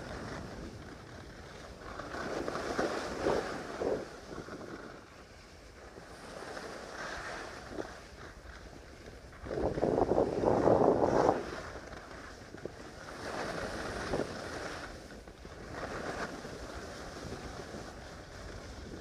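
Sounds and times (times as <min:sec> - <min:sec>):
skis scraping over snow: 0:00.0 - 0:19.0
wind buffeting microphone: 0:09.2 - 0:11.8.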